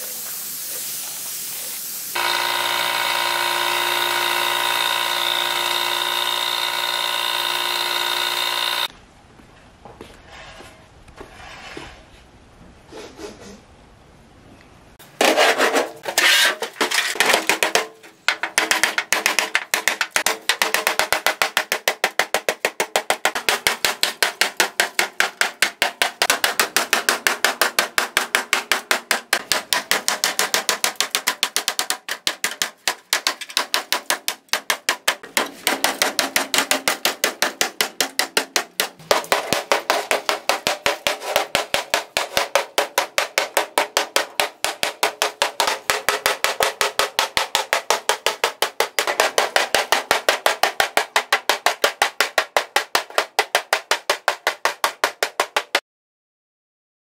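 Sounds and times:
hammer on metal panel: 17.1 - 55.8.

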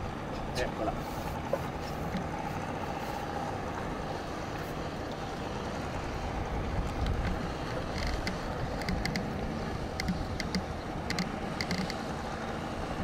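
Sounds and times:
choppy water: 0.0 - 13.0
distant motorboat engine drone: 0.0 - 13.0
faint clicks: 6.8 - 12.0.

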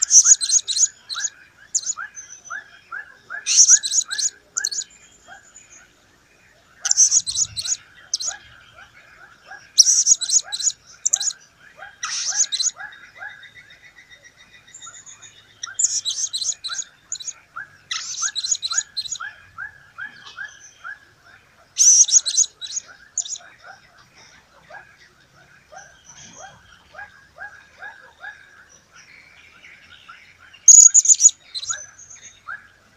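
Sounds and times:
parrot shrill chirps: 0.0 - 2.0, 3.4 - 4.9, 9.8 - 11.3, 12.0 - 12.8, 21.8 - 23.4, 30.7 - 31.8.

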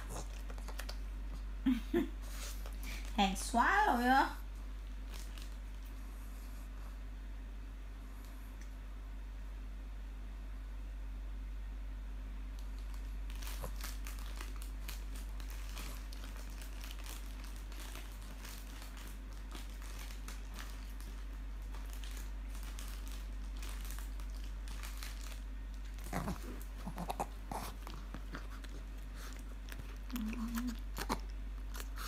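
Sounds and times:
steady low hum: 0.0 - 32.0
plastic wrapping crinkling: 4.8 - 6.0, 12.6 - 32.0.

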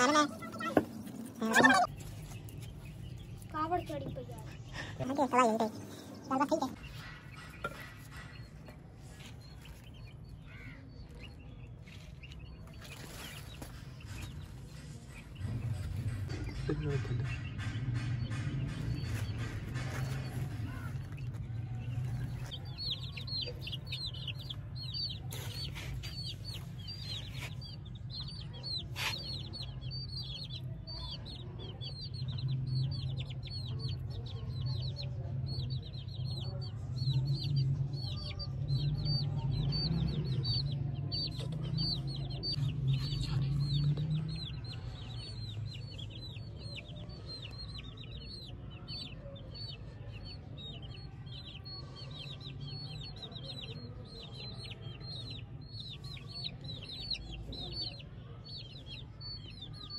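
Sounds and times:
chicks peeping: 0.0 - 59.9.

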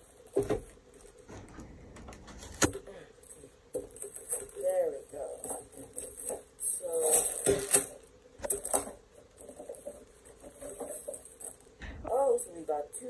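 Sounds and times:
plastic bags of bricks rattling: 3.3 - 11.8.

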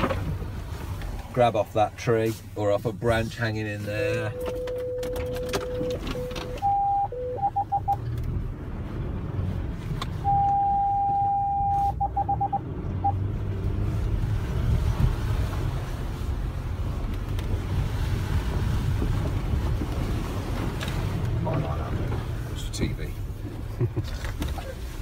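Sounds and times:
vehicle driving rumble: 0.0 - 25.0
parking sensor beeping: 4.3 - 8.0, 10.2 - 13.2.

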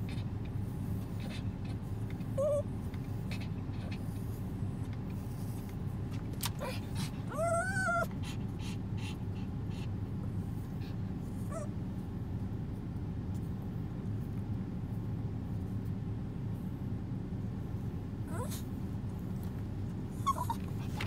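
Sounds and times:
steady low hum: 0.0 - 21.0
small dog whining: 2.2 - 4.1, 6.5 - 9.5, 11.4 - 11.8, 18.3 - 18.7, 20.1 - 21.0
dog whimpering: 2.3 - 4.1, 6.6 - 9.6, 11.4 - 11.8, 18.3 - 18.7, 20.1 - 21.0.

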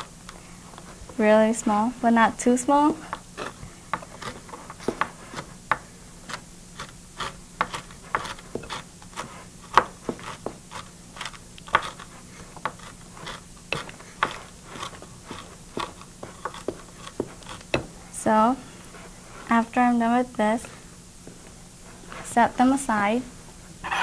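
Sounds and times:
faint low hum: 0.0 - 24.0
knife chopping nuts on a board: 2.8 - 18.0.

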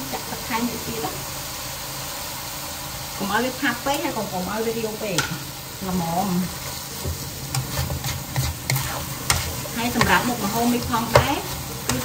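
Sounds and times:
sizzle of frying: 0.0 - 12.0
spatula scraping and knocking wok: 6.2 - 12.0.

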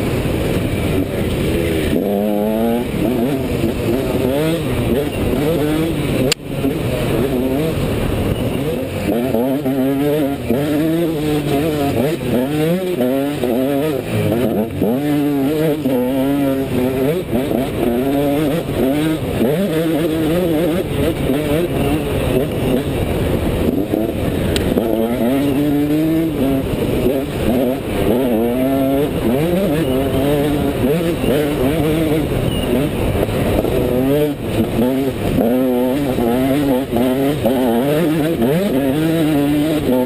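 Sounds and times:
dirt bike engine revving: 0.0 - 40.0.

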